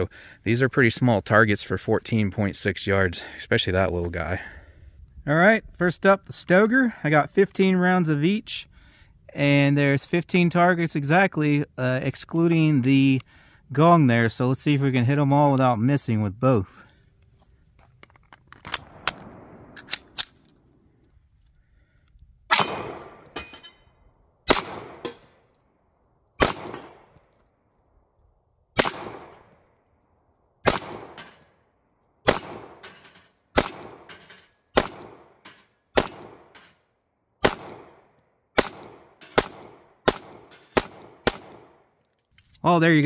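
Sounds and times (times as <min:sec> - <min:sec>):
pistol shots with echo: 0:22.5 - 0:23.5, 0:24.4 - 0:25.4, 0:26.4 - 0:27.2, 0:28.8 - 0:29.5, 0:30.6 - 0:31.4, 0:32.2 - 0:32.9, 0:33.5 - 0:34.1, 0:34.8 - 0:36.6, 0:37.4 - 0:41.9.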